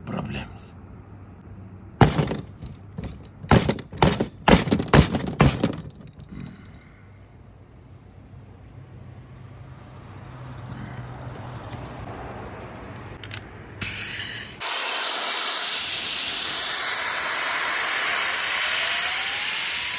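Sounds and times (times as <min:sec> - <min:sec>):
fan wheel thudding on table: 0:02.0 - 0:06.0.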